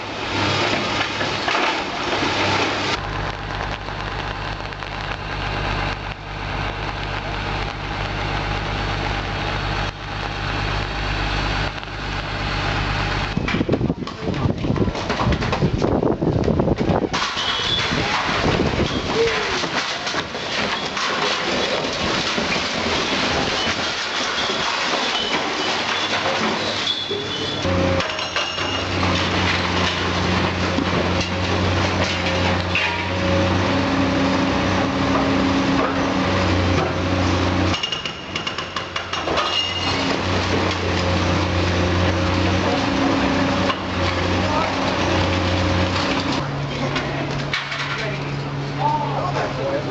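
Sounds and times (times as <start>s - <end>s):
rubble breaking and falling: 0.0s - 4.4s, 16.5s - 33.5s, 34.9s - 46.4s
excavator diesel engine running: 0.0s - 49.9s.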